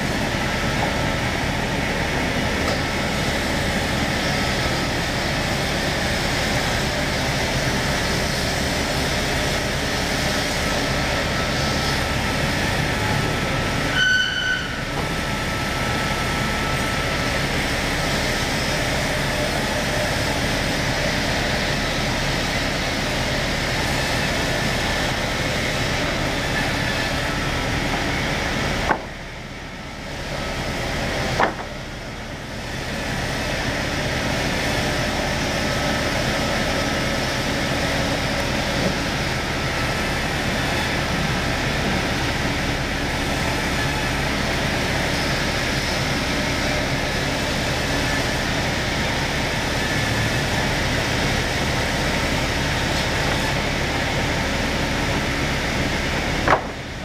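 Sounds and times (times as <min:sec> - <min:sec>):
woodworking machine cutting timber: 0:00.0 - 0:57.0
short high whistle: 0:13.9 - 0:14.8.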